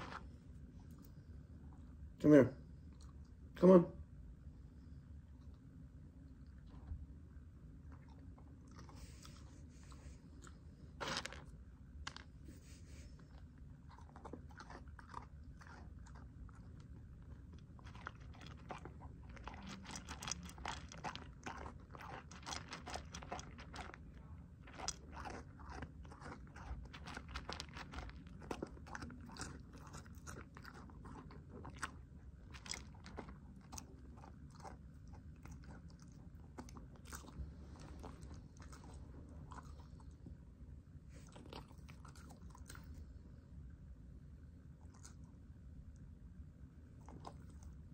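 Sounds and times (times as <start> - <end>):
dog crunching food: 10.3 - 12.4, 13.6 - 40.2, 41.1 - 43.0, 44.8 - 45.3, 47.0 - 47.8.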